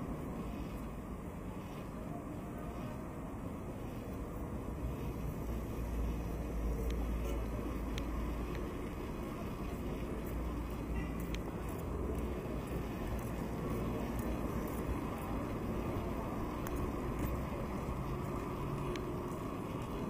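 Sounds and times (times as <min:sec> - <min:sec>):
road traffic rumble: 0:00.0 - 0:20.0
faint clicks: 0:06.8 - 0:15.0.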